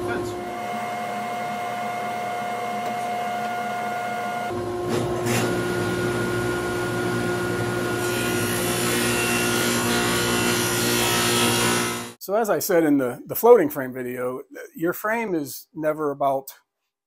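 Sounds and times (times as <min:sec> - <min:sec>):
table saw motor hum: 0:00.0 - 0:12.2.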